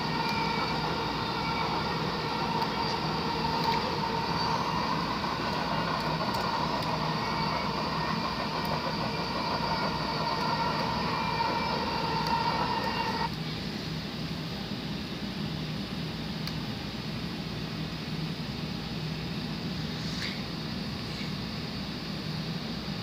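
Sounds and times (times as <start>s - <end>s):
held tones: 0.0s - 13.3s
train rumbling: 0.0s - 13.3s.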